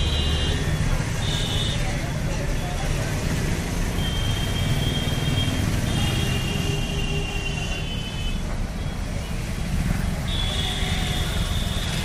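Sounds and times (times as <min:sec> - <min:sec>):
motorcycle and car engines passing: 0:04.6 - 0:06.5.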